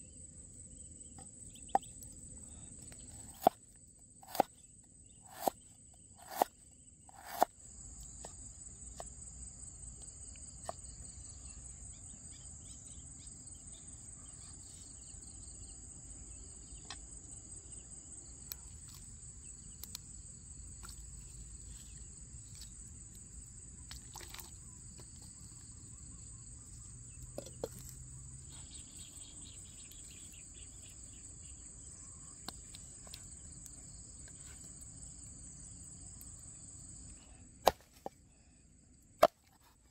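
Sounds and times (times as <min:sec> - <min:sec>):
cleaver chopping on wooden board: 0:04.2 - 0:04.5, 0:05.3 - 0:05.6, 0:06.2 - 0:06.5, 0:07.1 - 0:07.5, 0:37.6 - 0:38.1
high-pitched insect chorus: 0:10.8 - 0:37.3.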